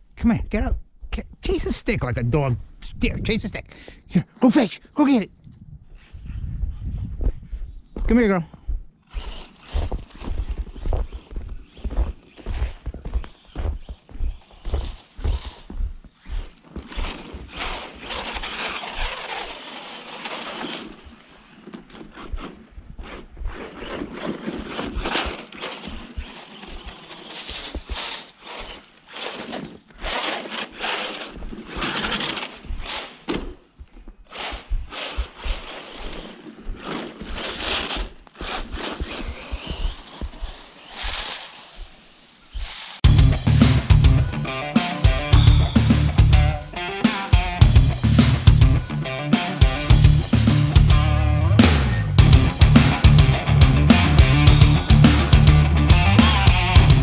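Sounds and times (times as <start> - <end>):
tyres hissing in snow: 38.0 - 43.0.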